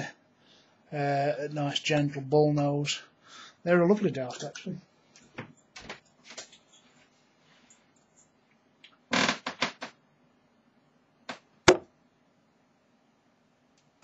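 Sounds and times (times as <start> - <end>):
darts thudding into dartboard: 11.7 - 11.9.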